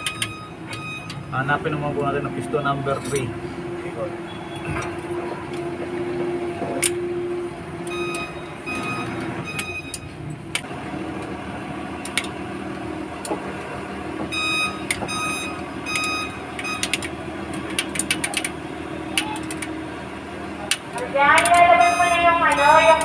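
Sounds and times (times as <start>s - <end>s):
sharp metallic clicks: 0.0s - 1.2s, 12.0s - 12.4s, 14.4s - 19.7s, 20.6s - 23.0s
electronic reversing beeps: 0.0s - 1.7s, 4.3s - 4.8s, 7.9s - 10.1s, 14.3s - 16.9s, 21.8s - 22.9s
vehicle engine hum: 0.0s - 23.0s.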